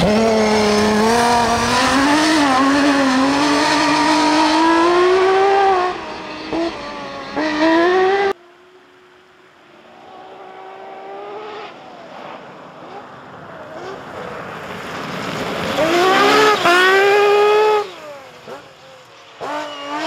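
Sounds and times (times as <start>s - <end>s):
rally car engine revving: 0.0s - 8.4s, 10.0s - 20.0s.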